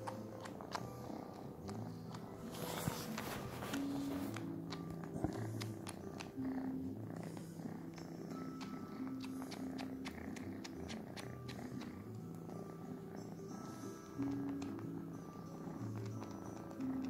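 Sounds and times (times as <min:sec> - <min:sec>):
kitten purring: 0:00.0 - 0:17.0
wet sucking clicks: 0:01.6 - 0:06.5.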